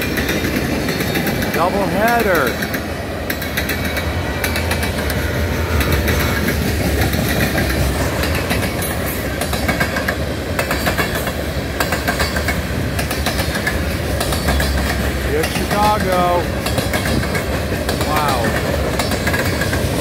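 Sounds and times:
freight cars rumbling: 0.0 - 20.0
wheels clicking over rail joints: 0.0 - 20.0.

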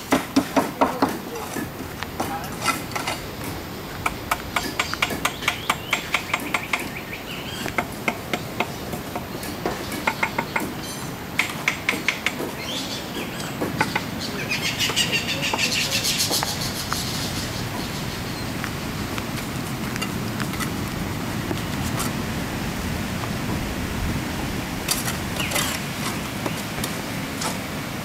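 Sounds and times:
high bird chirping: 4.2 - 11.2, 12.1 - 19.2.

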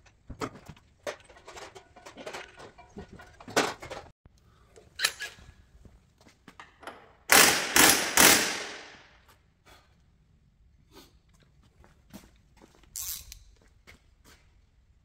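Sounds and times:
compressed-air tool bursts: 7.3 - 8.9.

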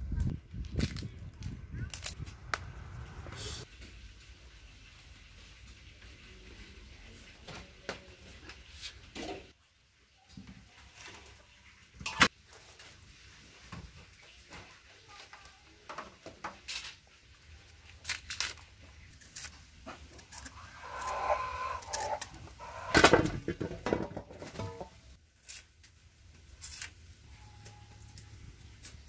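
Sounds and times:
roots knocking on tiled floor: 19.8 - 25.0.

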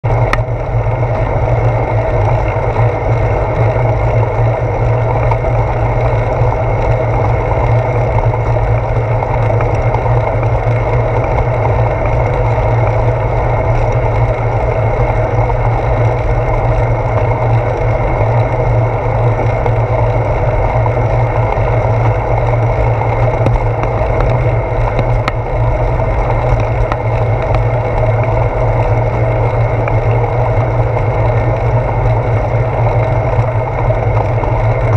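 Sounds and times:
road noise: 0.0 - 34.9
strong low hum: 0.0 - 34.9
wind rumble: 0.0 - 34.9.

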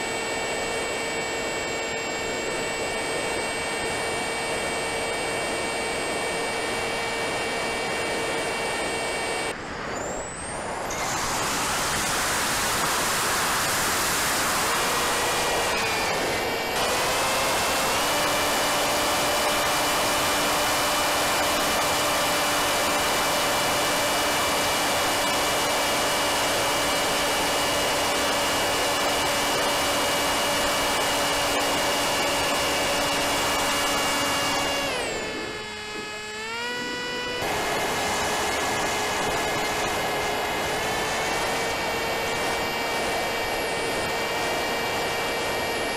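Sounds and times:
electric motor and propeller whine: 0.0 - 45.9.

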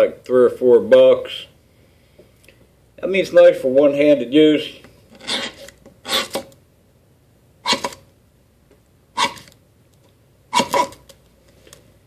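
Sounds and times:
ferro rod scraping: 5.1 - 6.5, 9.2 - 9.6.

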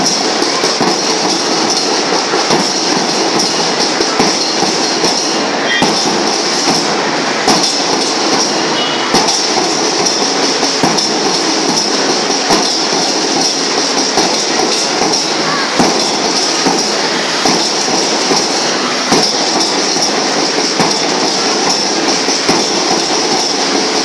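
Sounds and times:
marching band drums and cymbals: 0.0 - 24.0.

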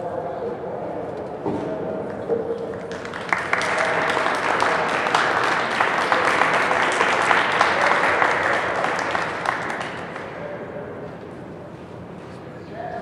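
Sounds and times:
audience applauding: 2.1 - 10.6.

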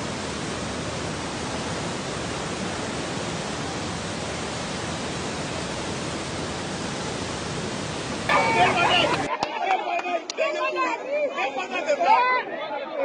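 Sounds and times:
river rushing through rapids: 0.0 - 9.3.

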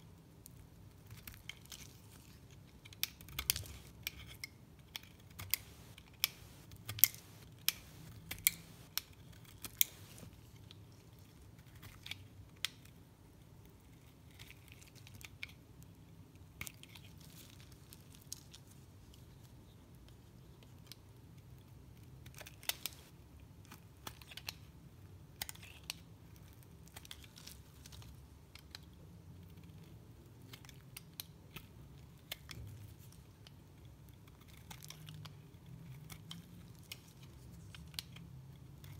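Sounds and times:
knife shaving soap crunching: 0.9 - 12.7, 33.7 - 38.9
quiet scraping cuts: 5.4 - 9.0.

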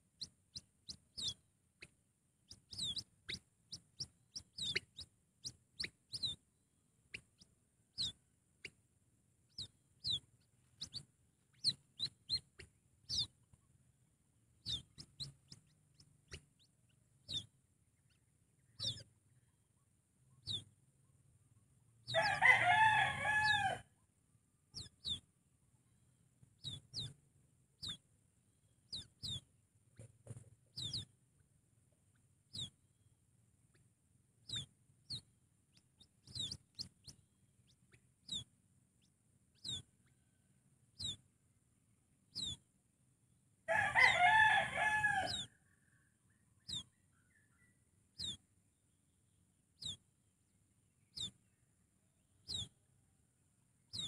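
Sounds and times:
rooster crowing: 22.1 - 23.9, 43.7 - 46.1.

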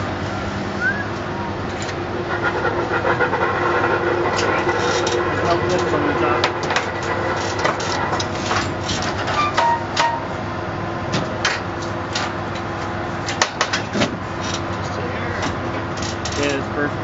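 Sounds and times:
low mechanical hum: 0.0 - 17.0
clicks and metallic knocks: 4.4 - 10.3.

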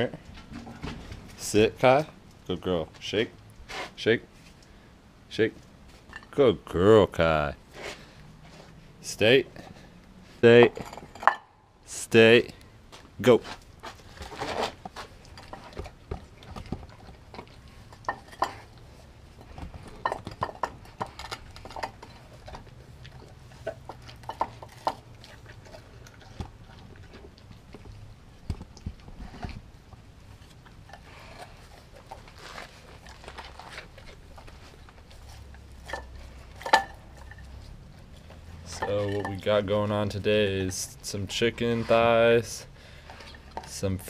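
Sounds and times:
dog chewing raw meat: 13.7 - 39.1.

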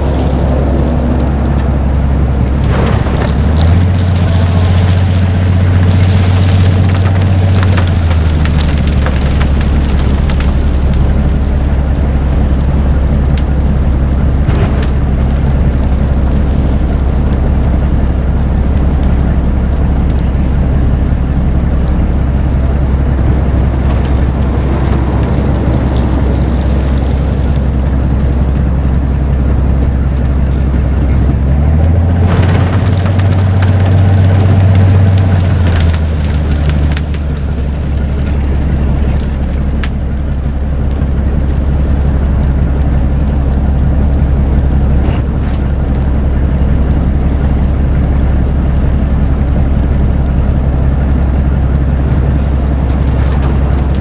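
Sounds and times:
diesel engine drone: 0.0 - 54.0
rush of thrown snow: 2.5 - 9.8.

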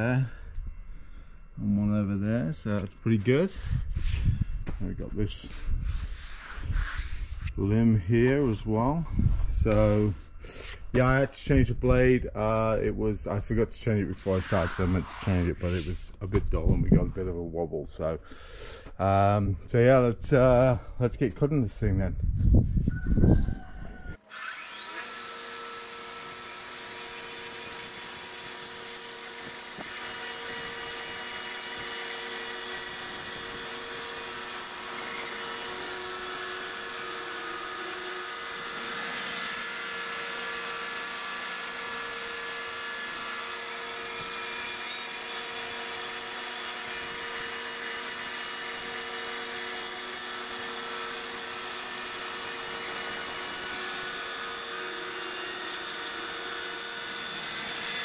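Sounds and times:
bandsaw mill cutting log: 24.2 - 58.0.

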